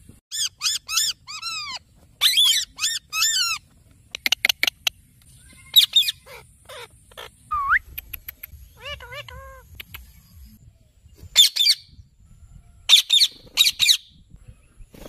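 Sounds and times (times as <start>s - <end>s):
parakeets squawking: 0.3s - 3.6s, 5.5s - 7.7s, 8.6s - 9.8s.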